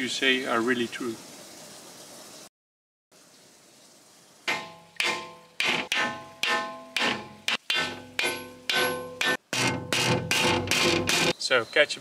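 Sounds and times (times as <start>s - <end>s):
hammer clanging on steel gate: 4.5s - 11.4s.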